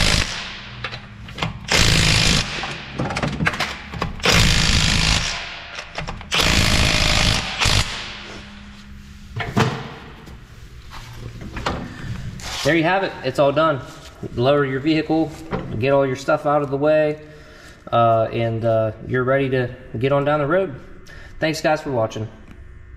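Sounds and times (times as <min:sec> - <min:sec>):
impact wrench hammering: 0:00.0 - 0:08.4.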